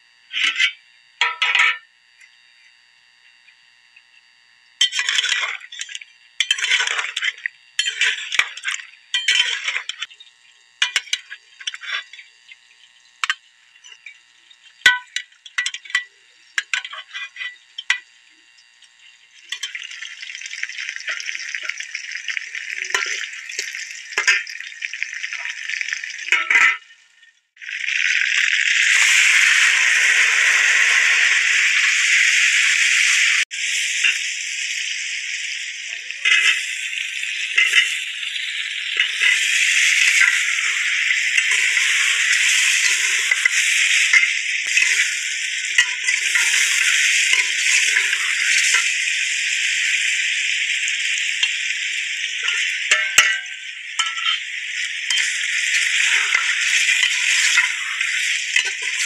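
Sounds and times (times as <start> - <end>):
meat sizzling in hot oil: 3.3 - 59.0
metal spoon scraping cookware: 4.8 - 10.1, 16.6 - 18.0, 26.3 - 26.9, 36.3 - 36.7, 37.5 - 48.9, 52.4 - 59.0.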